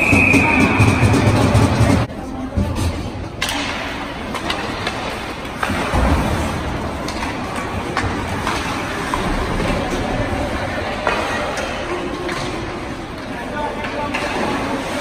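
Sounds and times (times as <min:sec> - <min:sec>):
skates and arena rumble: 0:00.0 - 0:15.0
hockey sticks and puck clicking: 0:03.4 - 0:06.1, 0:06.9 - 0:10.1, 0:10.9 - 0:14.8.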